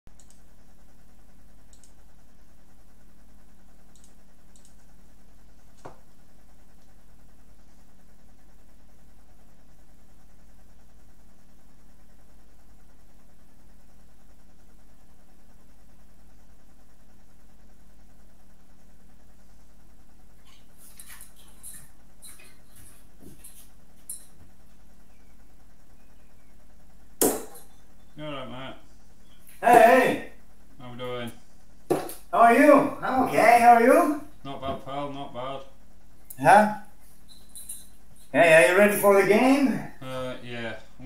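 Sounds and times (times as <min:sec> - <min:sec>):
faint clicks: 0:00.1 - 0:00.5, 0:01.7 - 0:02.0, 0:03.9 - 0:04.8
low hum: 0:00.1 - 0:41.0.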